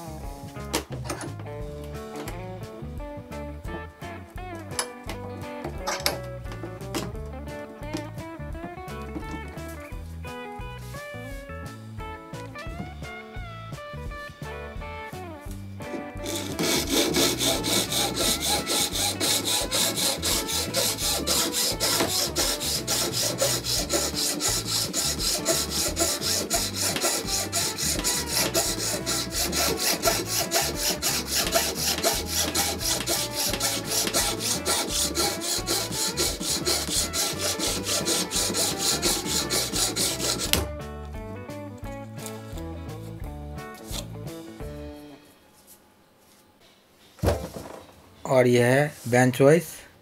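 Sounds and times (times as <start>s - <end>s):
hacksaw cutting wood: 15.8s - 40.7s.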